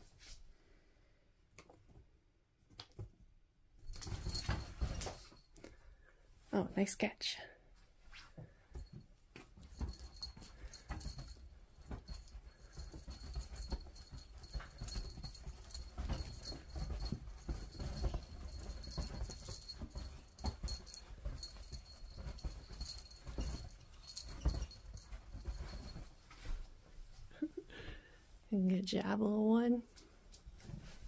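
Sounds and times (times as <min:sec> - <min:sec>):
bedspread rustling: 0:00.0 - 0:00.5, 0:03.8 - 0:06.0, 0:07.7 - 0:28.5, 0:29.9 - 0:31.0.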